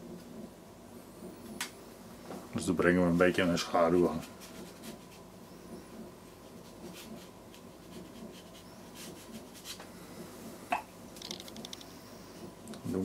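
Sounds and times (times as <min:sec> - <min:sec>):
paintbrush strokes on paper: 0:03.0 - 0:09.9.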